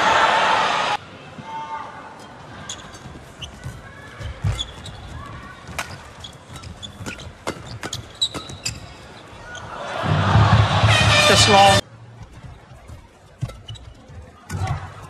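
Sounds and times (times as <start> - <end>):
shoe squeaks on court: 2.7 - 5.2, 5.8 - 9.6
low crowd hum: 8.6 - 15.0.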